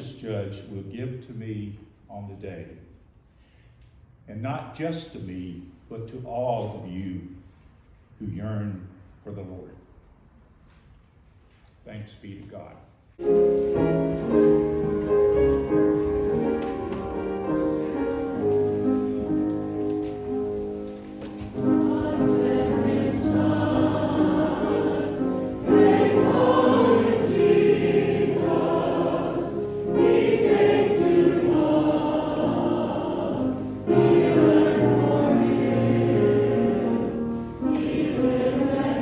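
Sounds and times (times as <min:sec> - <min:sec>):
church choir singing: 0:13.2 - 0:39.0.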